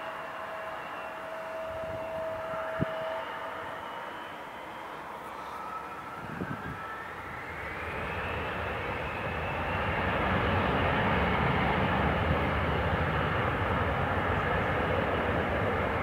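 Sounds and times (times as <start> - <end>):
jet engine whine: 0.0 - 16.0
jet rumble: 5.3 - 16.0.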